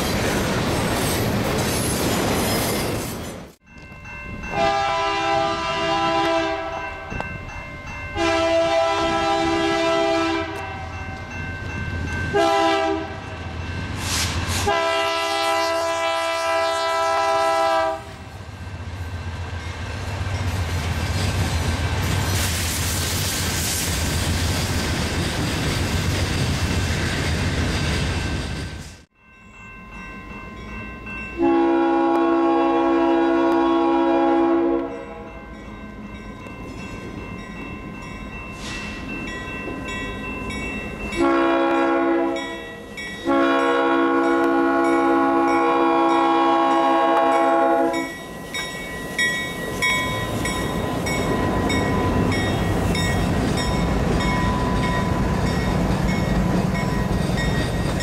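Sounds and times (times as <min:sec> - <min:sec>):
freight cars rolling on rails: 0:00.0 - 0:04.4, 0:18.5 - 0:29.1, 0:47.1 - 0:58.0
diesel locomotive engine: 0:00.0 - 0:58.0
locomotive air horn blasts: 0:04.5 - 0:07.1, 0:08.2 - 0:10.9, 0:12.3 - 0:13.4, 0:14.6 - 0:18.2, 0:31.4 - 0:35.3, 0:41.2 - 0:42.5, 0:43.2 - 0:48.1.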